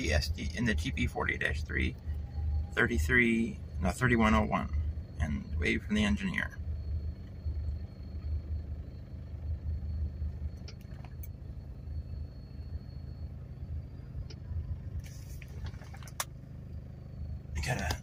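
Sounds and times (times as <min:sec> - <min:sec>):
faint clicks: 0:10.6 - 0:11.4.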